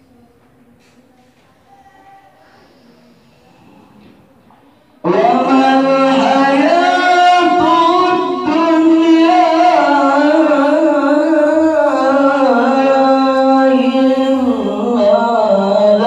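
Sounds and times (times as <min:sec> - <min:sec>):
man chanting recitation: 0:05.0 - 0:16.0.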